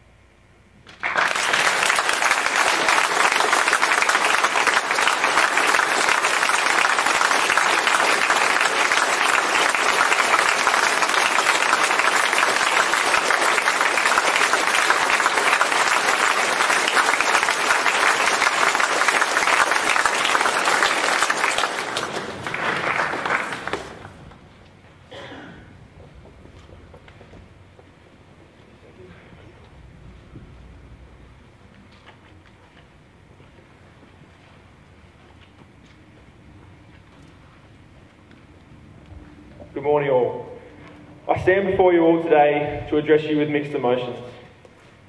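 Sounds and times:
audience applauding: 0.9s - 24.4s.

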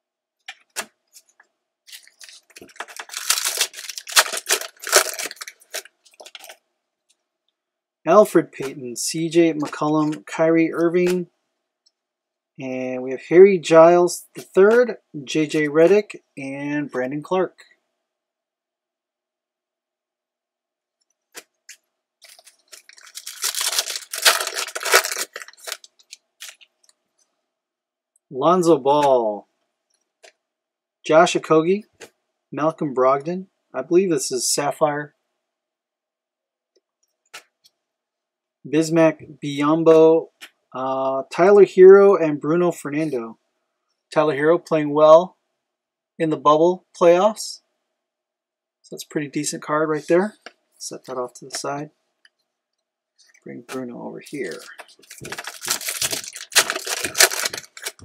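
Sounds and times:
foil wrapper ripping: 1.9s - 6.5s, 22.2s - 26.7s, 54.4s - 58.0s
foil wrapper crinkling: 1.9s - 6.6s, 22.2s - 26.9s, 54.4s - 58.0s.

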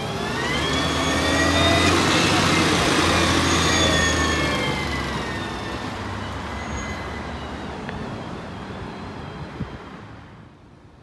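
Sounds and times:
garbage truck driving away: 0.0s - 9.4s.

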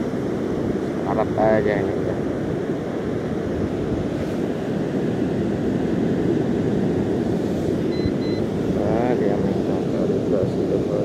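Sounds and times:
surf washing: 0.0s - 11.0s
wind buffeting microphone: 0.0s - 11.0s
electronic beep: 7.9s - 8.5s.

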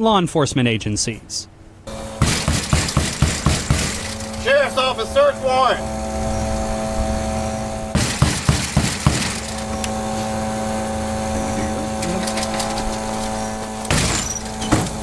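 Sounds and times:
steady machine hum: 1.5s - 15.0s
heavy knocks on door: 2.2s - 4.2s, 8.0s - 9.4s.

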